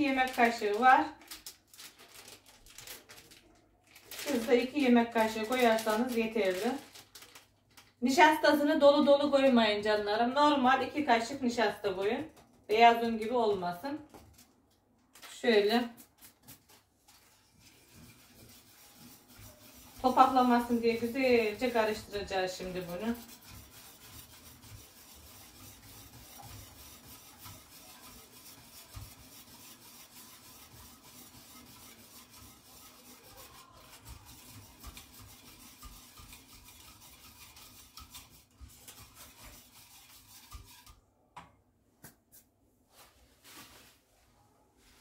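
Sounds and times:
whisk scraping a metal pot: 0:04.0 - 0:07.2, 0:15.8 - 0:41.0.

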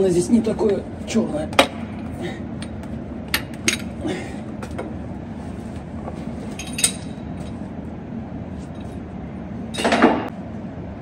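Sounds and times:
workshop background noise: 0:00.0 - 0:10.4
metal tools clinking: 0:06.5 - 0:07.6.

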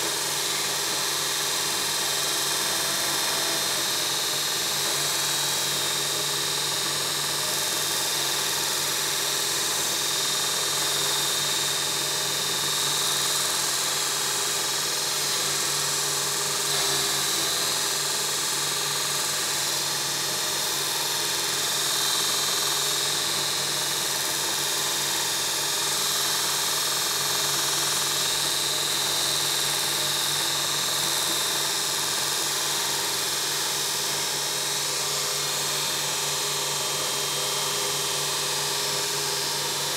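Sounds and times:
belt grinder grinding steel: 0:15.2 - 0:18.8.

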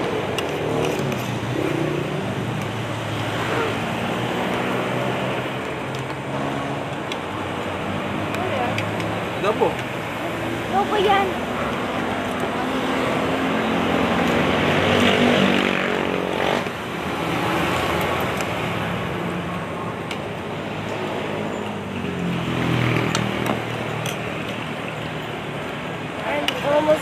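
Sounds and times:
street noise: 0:00.0 - 0:27.0
vehicles passing: 0:00.0 - 0:27.0.

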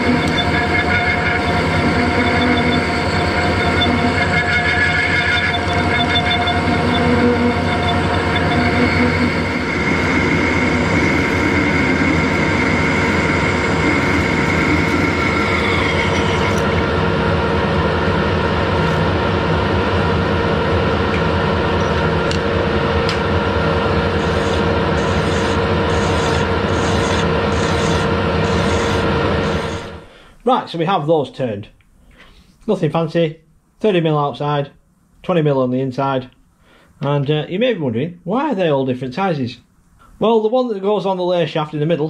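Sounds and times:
lathe cutting tone: 0:00.0 - 0:30.1
lathe machine drone: 0:00.0 - 0:30.1
hand file rasping on metal: 0:24.2 - 0:29.9.

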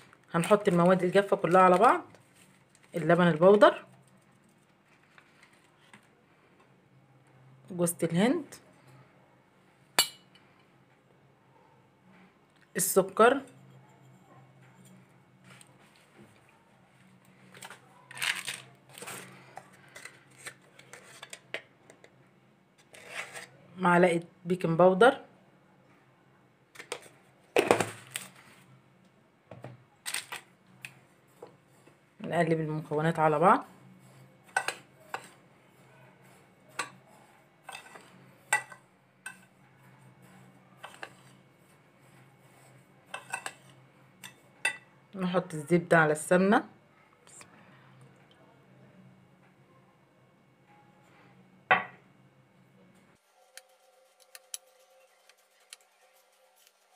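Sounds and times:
spoon scooping powder: 0:17.0 - 0:21.5, 0:22.8 - 0:23.6, 0:36.2 - 0:44.4, 0:53.3 - 0:56.9.

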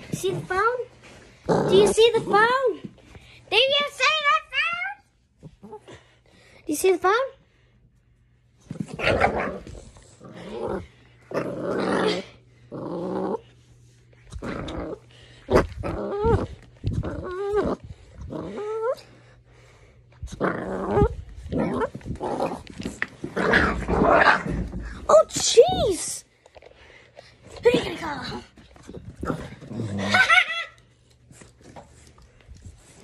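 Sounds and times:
puppy growling: 0:01.3 - 0:02.6, 0:08.7 - 0:13.6, 0:14.2 - 0:19.2, 0:20.2 - 0:25.1, 0:28.3 - 0:30.8
puppy whining: 0:15.6 - 0:19.2.

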